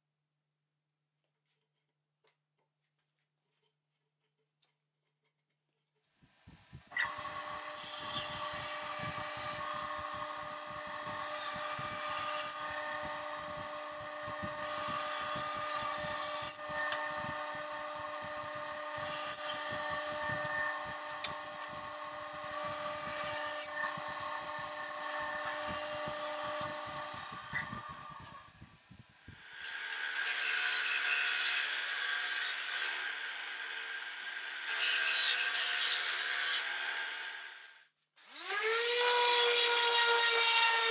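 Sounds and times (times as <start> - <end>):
bandsaw motor hum: 6.2 - 31.9
bandsaw cutting wood: 6.8 - 28.7, 29.3 - 37.6, 38.2 - 40.9.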